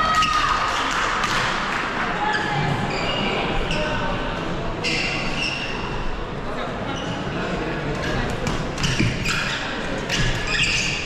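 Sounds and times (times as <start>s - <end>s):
murmur of voices: 0.0s - 11.0s
shoes squeaking on floor: 4.8s - 5.9s, 8.0s - 11.0s.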